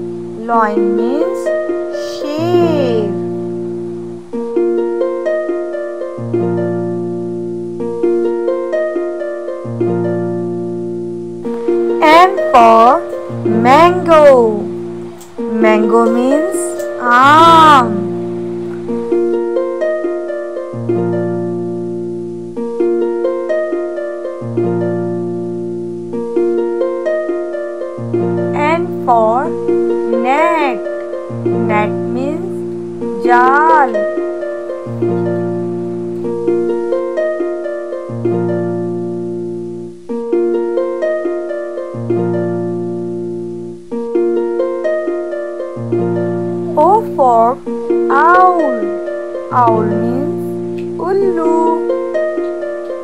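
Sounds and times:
low bass notes: 0.0 - 4.9, 9.7 - 19.6, 28.0 - 37.0, 45.8 - 53.0
harp-like plucked arpeggios: 0.0 - 53.0.

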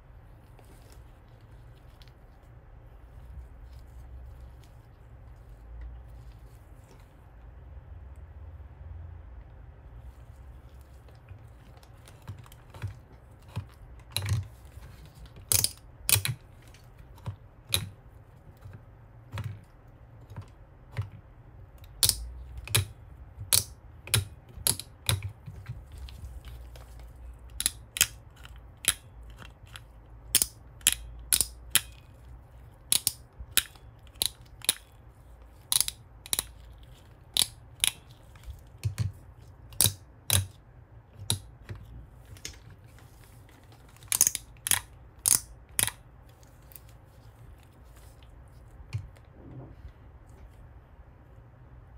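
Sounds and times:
plastic toy parts clicking: 11.8 - 18.0, 21.8 - 40.6, 41.2 - 42.7, 43.6 - 46.9.

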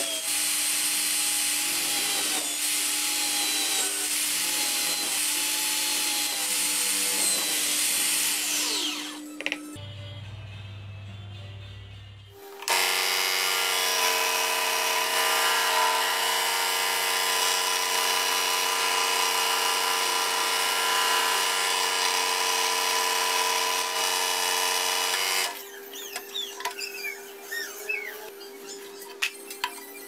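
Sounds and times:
power tool motor running: 0.0 - 9.6, 12.6 - 25.6
short squeaks: 25.6 - 30.0.

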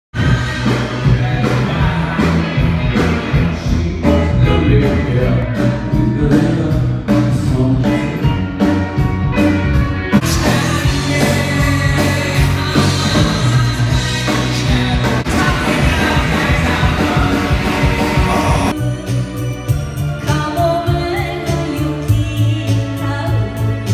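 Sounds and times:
drums beating: 0.1 - 18.8
person singing: 0.2 - 8.5, 10.2 - 19.0
electric guitars: 0.2 - 23.9.

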